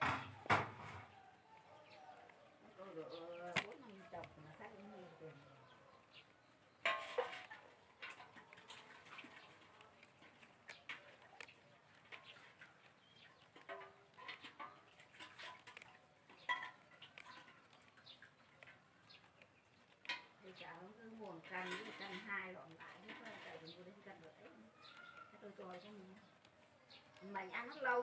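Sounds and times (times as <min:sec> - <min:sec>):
sharp knocks: 0:00.0 - 0:01.1
soft clicks and rustles: 0:00.0 - 0:28.0
faint bird chirps: 0:23.3 - 0:28.0.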